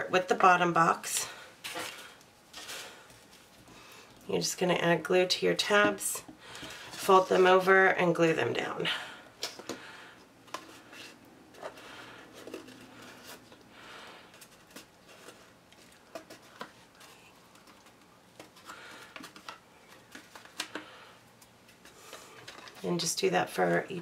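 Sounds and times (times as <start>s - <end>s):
paper rustling: 10.5s - 21.0s.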